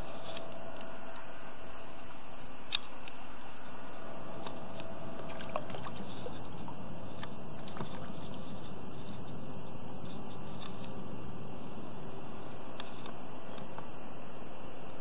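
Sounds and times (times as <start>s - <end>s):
small clicks and ticks: 0.0s - 3.3s, 4.3s - 11.0s, 12.4s - 14.0s.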